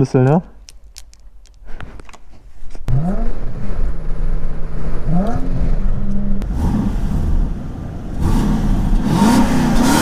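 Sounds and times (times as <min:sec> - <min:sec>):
car engine accelerating: 0:02.9 - 0:10.0.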